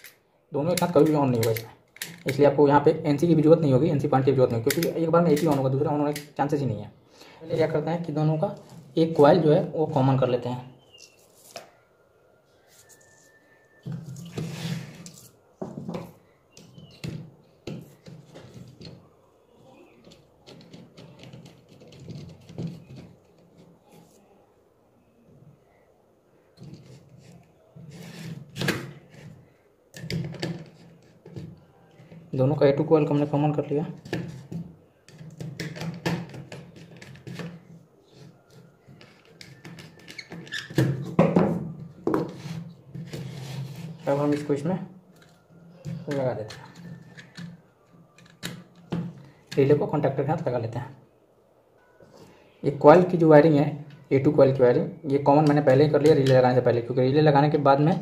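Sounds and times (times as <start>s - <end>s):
plastic contactors knocking: 20.0s - 23.7s.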